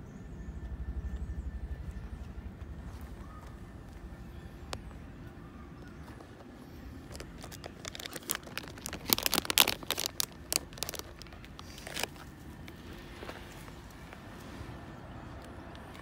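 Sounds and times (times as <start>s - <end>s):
squirrel scrabbling rustling crinkling: 2.8s - 14.7s.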